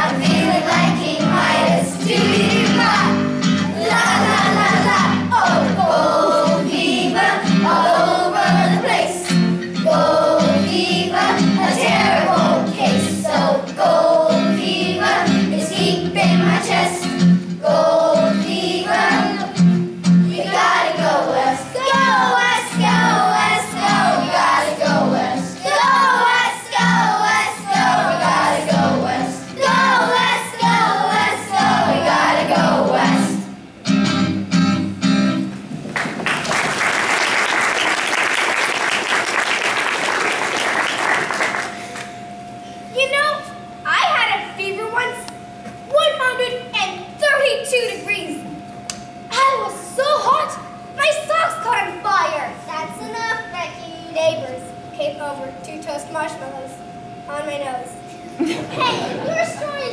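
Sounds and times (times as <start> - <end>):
children's choir singing: 0.0 - 33.6, 58.4 - 59.9
instrumental accompaniment: 0.0 - 37.7
audience applauding: 35.8 - 42.2.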